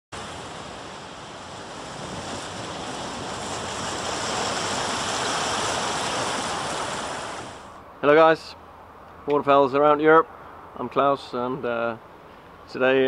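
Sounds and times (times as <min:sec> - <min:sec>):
steady rushing noise: 0:00.1 - 0:08.6.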